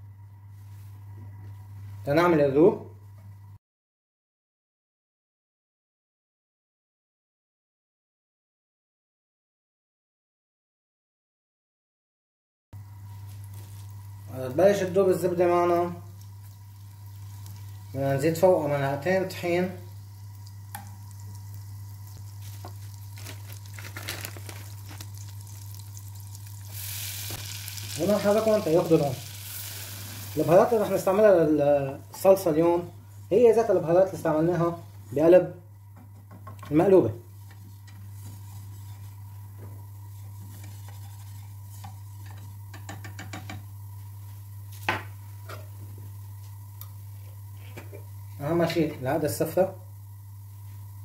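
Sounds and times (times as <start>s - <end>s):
steady low hum: 12.8s - 51.0s
butter sizzling in a pot: 13.0s - 31.3s
whisk scraping in pot: 40.1s - 42.5s
whisk knocking pot: 41.8s - 43.7s.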